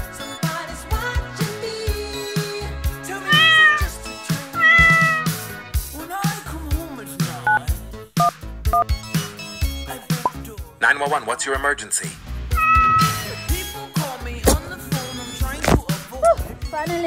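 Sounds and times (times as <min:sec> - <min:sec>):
background music with steady beat: 0:00.0 - 0:17.0
cat meowing: 0:03.2 - 0:05.4, 0:12.5 - 0:13.5.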